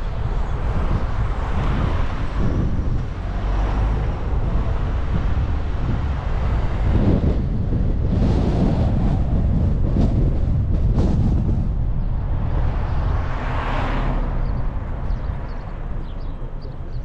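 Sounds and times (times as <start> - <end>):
car passing: 0.0 - 17.0
street traffic: 0.0 - 17.0
wind rumbling on microphone: 0.0 - 17.0.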